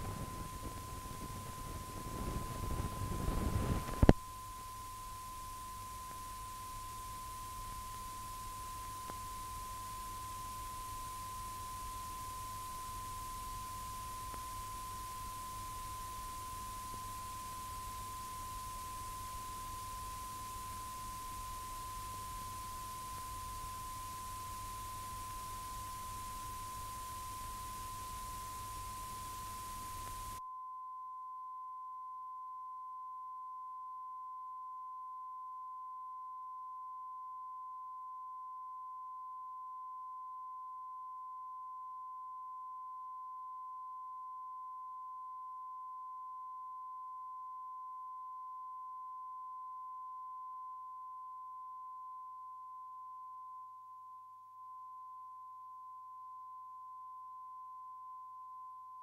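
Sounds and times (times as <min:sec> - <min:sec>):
faint low hum: 0:00.0 - 0:30.5.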